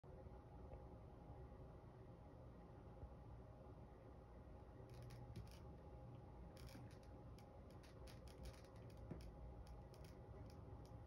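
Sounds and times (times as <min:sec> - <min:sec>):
puppy claws clicking on plastic: 0:06.6 - 0:11.0.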